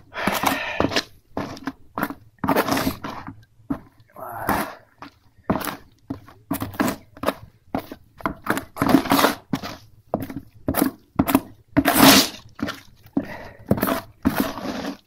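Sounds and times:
paste scraped in plastic basin: 0.3 - 3.4, 8.8 - 10.9, 11.8 - 12.9, 13.7 - 15.0.

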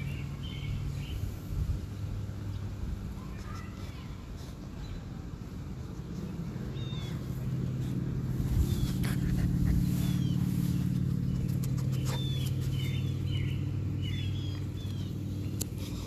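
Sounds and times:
low motor hum: 0.0 - 16.0
small birds chirping: 0.0 - 16.0.

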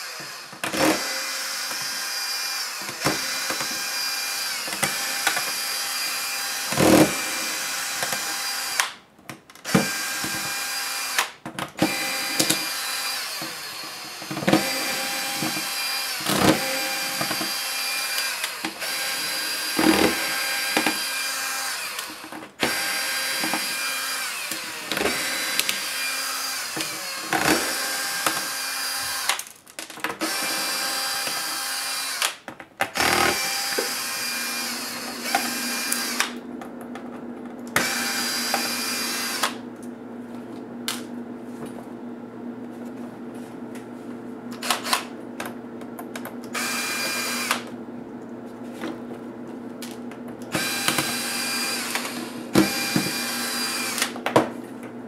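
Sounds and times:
electric screwdriver running: 0.0 - 8.9, 9.6 - 29.4, 30.2 - 36.4, 37.8 - 39.6, 44.6 - 45.1, 46.5 - 47.7, 50.5 - 54.2.

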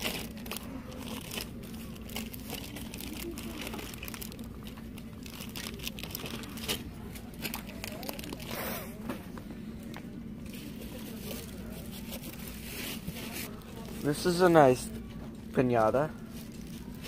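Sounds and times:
crinkling and rustling: 0.0 - 9.4
steady low hum: 0.0 - 17.0.

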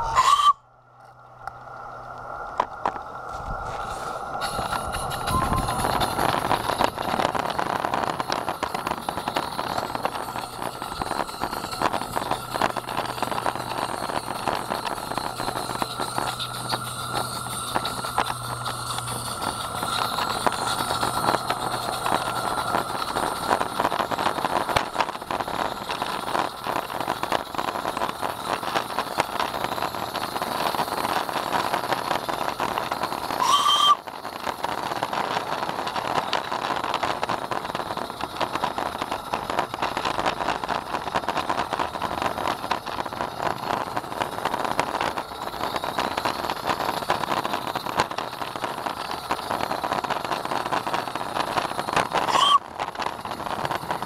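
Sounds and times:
train whistle blast: 0.0 - 0.7, 5.1 - 6.0, 33.4 - 34.1, 52.3 - 52.7
model train wheels clattering on rails: 4.4 - 54.0.

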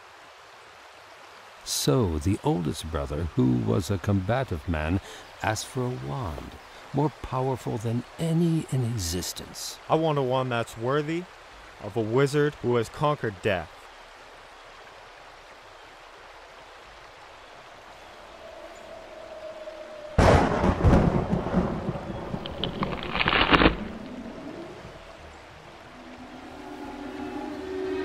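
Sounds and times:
faint steady hiss: 0.0 - 28.0
thunderclap: 20.0 - 25.0.

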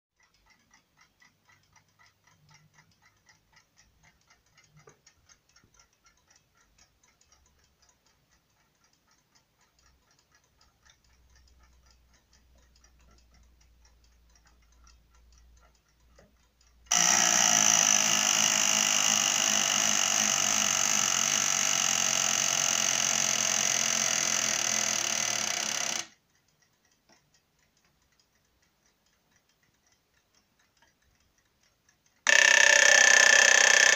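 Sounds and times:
clocks ticking quietly: 0.2 - 33.9
alarm bell ringing: 16.9 - 26.1, 32.3 - 33.9.

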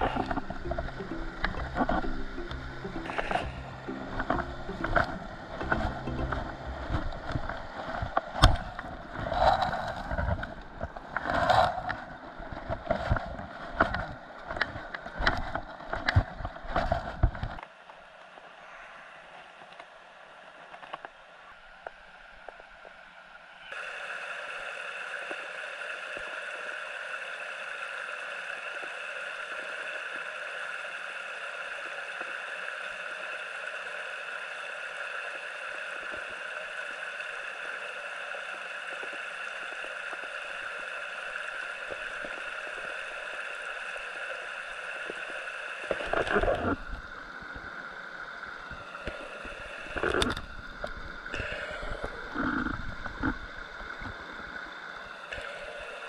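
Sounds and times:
stream rushing over rocks: 0.0 - 17.2.

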